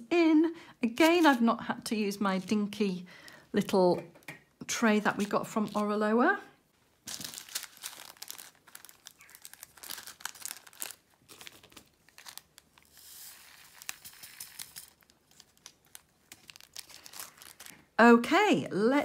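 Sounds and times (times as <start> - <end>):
plastic bag crinkling: 5.0 - 6.0, 7.0 - 18.0.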